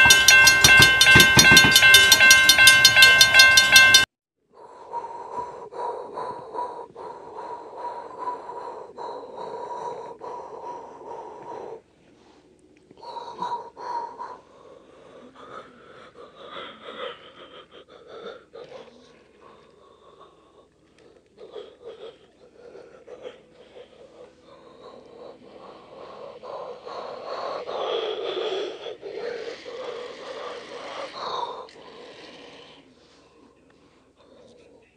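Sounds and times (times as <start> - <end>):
wheels clicking over rail joints: 0.0 - 4.0
toy train rolling on plastic track: 29.4 - 32.6.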